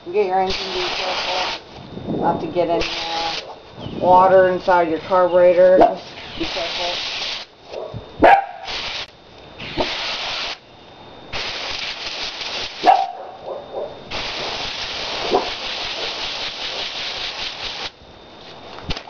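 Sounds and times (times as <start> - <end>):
hose spray nozzle hissing: 0.4 - 1.6, 2.8 - 3.6, 5.2 - 7.5, 8.5 - 10.6, 14.1 - 18.0
dog barking: 7.8 - 8.7, 12.8 - 14.0.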